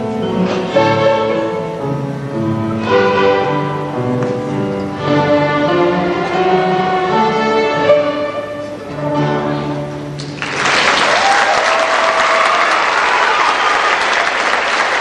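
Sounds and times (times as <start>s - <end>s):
string orchestra playing: 0.0s - 10.4s
audience applause: 10.2s - 15.0s.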